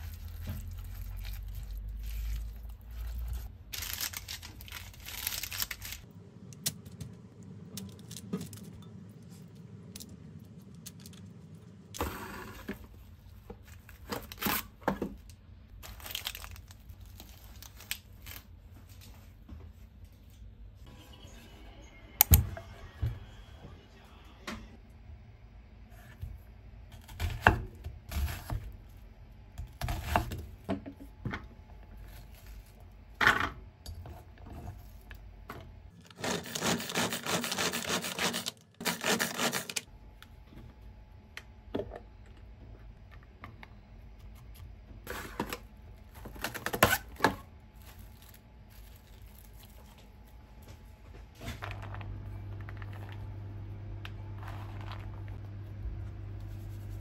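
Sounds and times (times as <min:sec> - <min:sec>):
hand food chopper whirring: 0:36.1 - 0:39.8
steady low hum: 0:47.4 - 0:57.0.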